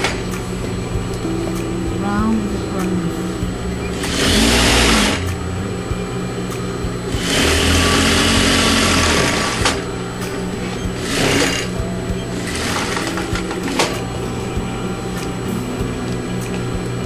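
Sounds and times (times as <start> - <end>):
electric sewing machine stitching: 3.9 - 5.2, 7.1 - 9.8, 11.0 - 13.9.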